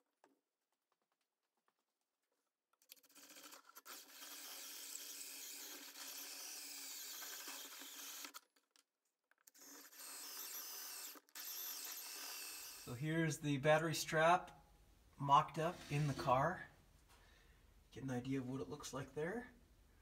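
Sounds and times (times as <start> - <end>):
drill hole saw cutting metal: 3.1 - 8.4, 9.5 - 12.9.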